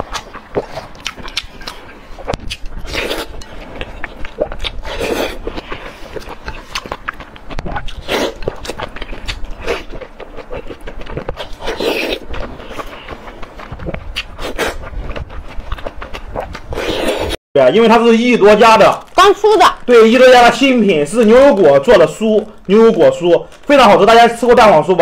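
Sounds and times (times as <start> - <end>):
wet chewing: 0.0 - 17.4, 18.5 - 24.5
lip and mouth smacks: 4.1 - 17.4.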